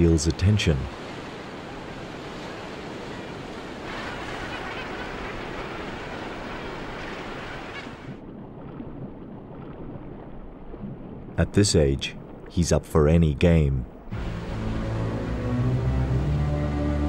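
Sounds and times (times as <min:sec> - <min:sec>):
surf washing and breaking: 0:00.0 - 0:12.5.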